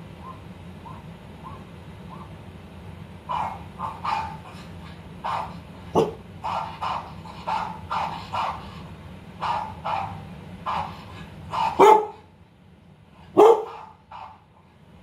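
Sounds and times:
recorded dog barks from speaker: 0:03.3 - 0:04.4, 0:05.2 - 0:08.6, 0:09.4 - 0:12.3, 0:13.3 - 0:14.5
dog barking loudly: 0:03.3 - 0:04.6, 0:05.2 - 0:08.7, 0:09.4 - 0:12.3, 0:13.3 - 0:14.5.

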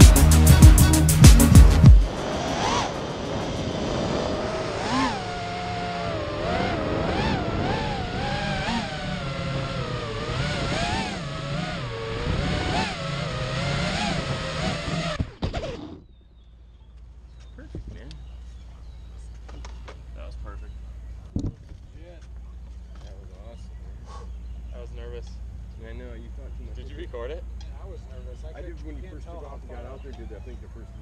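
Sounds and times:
drone motors whining: 0:00.0 - 0:31.0
rush of air: 0:01.4 - 0:05.3.

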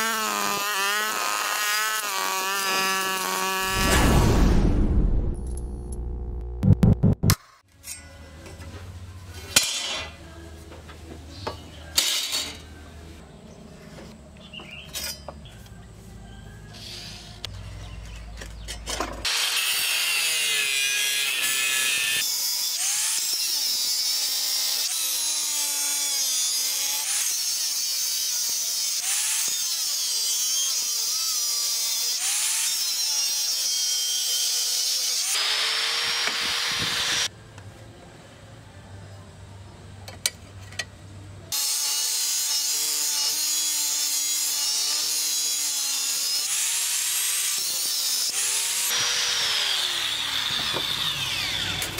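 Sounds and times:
angle grinder cutting steel: 0:00.0 - 0:04.0, 0:19.2 - 0:37.3, 0:41.5 - 0:51.9.

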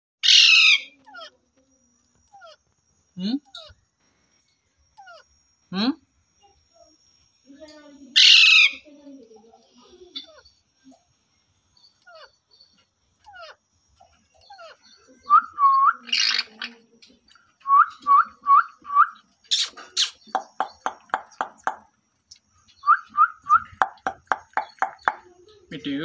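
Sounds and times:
harsh parakeet screeches: 0:00.2 - 0:01.3, 0:08.2 - 0:08.9
parakeets calling: 0:00.2 - 0:01.4, 0:08.1 - 0:08.9, 0:11.8 - 0:16.9, 0:18.7 - 0:21.9, 0:22.6 - 0:25.4.

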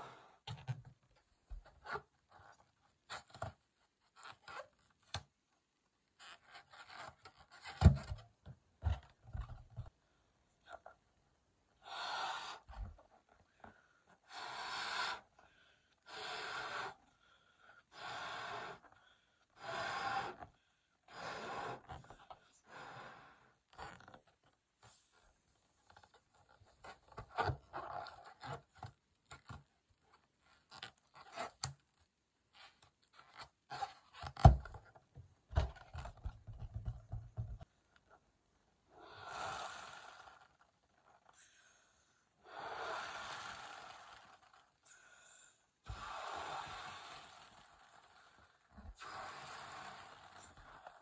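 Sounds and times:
breath blowing up balloon: 0:11.8 - 0:13.0, 0:14.2 - 0:17.3, 0:17.9 - 0:24.0, 0:38.9 - 0:41.8, 0:42.4 - 0:51.0
quick breaths drawn in: 0:41.3 - 0:51.0.

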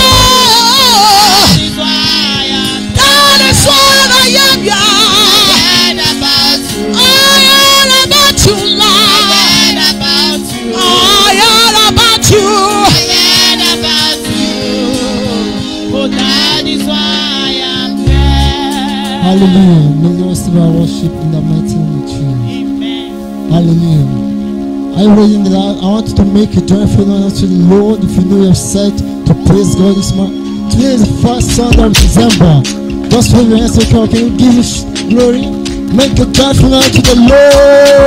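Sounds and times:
women singing into microphones: 0:00.0 - 0:19.3
held accompaniment chords: 0:00.0 - 0:38.0
light beat: 0:01.2 - 0:08.7, 0:12.0 - 0:19.5, 0:29.4 - 0:38.0.

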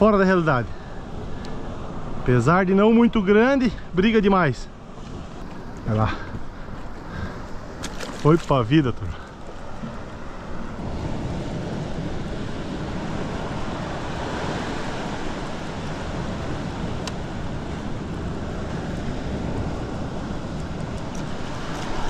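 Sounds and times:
sea noise: 0:00.0 - 0:22.0.

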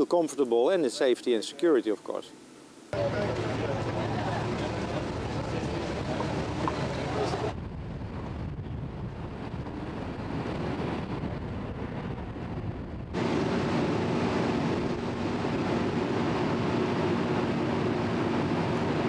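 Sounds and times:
mechanical hum with droning tones: 0:00.0 - 0:19.0
wind noise: 0:04.8 - 0:19.0.

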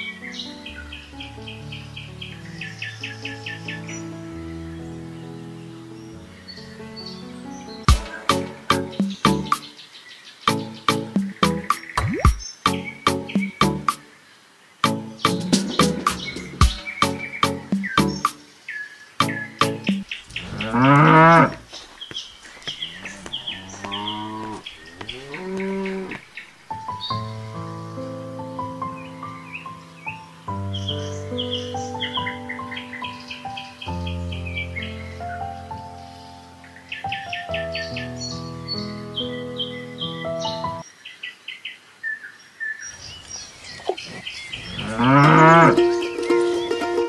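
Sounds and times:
birds chirping: 0:00.0 - 0:47.0
cows mooing: 0:20.3 - 0:21.7, 0:22.6 - 0:26.4, 0:43.9 - 0:45.8
drawn-out farm animal call: 0:20.3 - 0:21.8, 0:22.5 - 0:26.5, 0:43.6 - 0:45.8.

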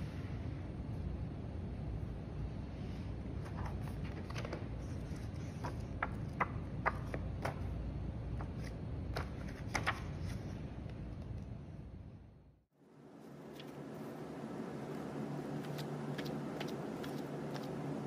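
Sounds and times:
book pages flicking: 0:08.4 - 0:10.4, 0:15.5 - 0:18.0.

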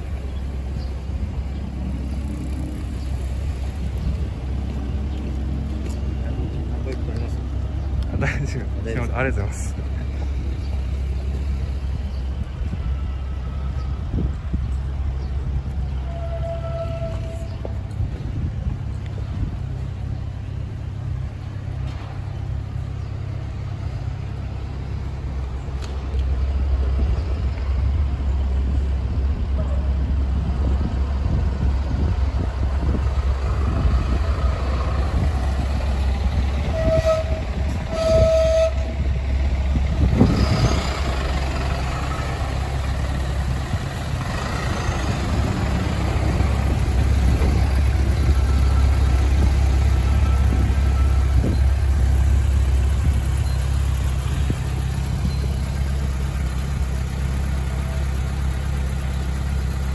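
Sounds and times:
short horn beeps: 0:36.6 - 0:39.0
motorcycle engine idling: 0:41.4 - 0:59.9.

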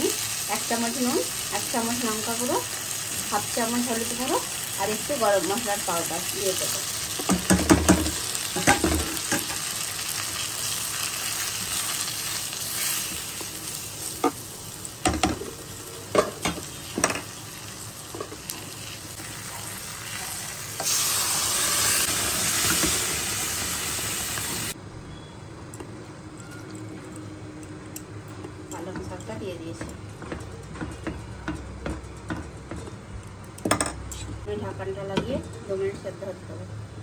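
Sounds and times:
vegetables sizzling in oil: 0:00.0 - 0:24.8.

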